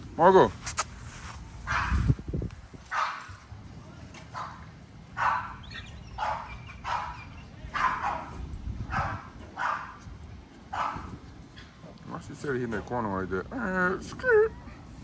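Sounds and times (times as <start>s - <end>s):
dog barking: 1.7s - 2.0s, 2.9s - 3.4s, 4.3s - 4.6s, 5.2s - 5.6s, 6.2s - 10.0s, 10.7s - 11.1s.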